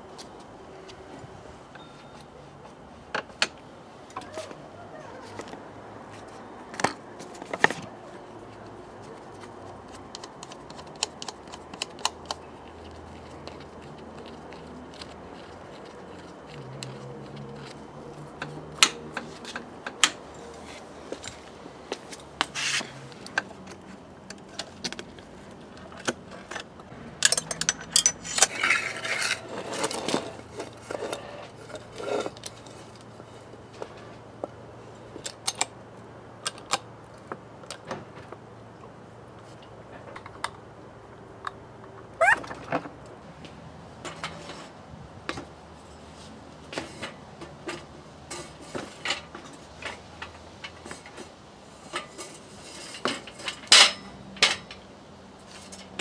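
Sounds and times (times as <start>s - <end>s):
metallic clicks and clinks of tools: 25.9s - 32.8s.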